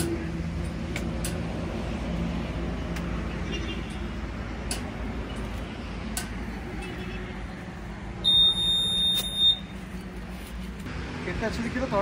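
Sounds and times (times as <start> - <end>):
long high electronic beep: 8.2 - 9.7.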